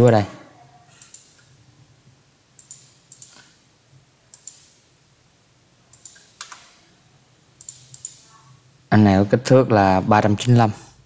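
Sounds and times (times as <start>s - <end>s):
computer mouse clicking: 0.9s - 1.5s, 2.6s - 3.6s, 4.3s - 4.8s, 5.9s - 6.8s, 7.6s - 8.4s.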